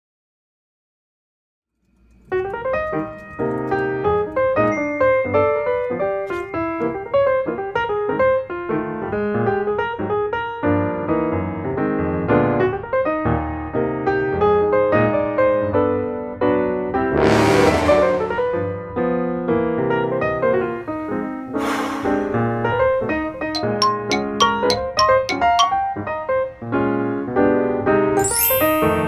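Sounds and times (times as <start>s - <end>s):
piano music: 23.5s - 26.3s, 28.2s - 29.0s.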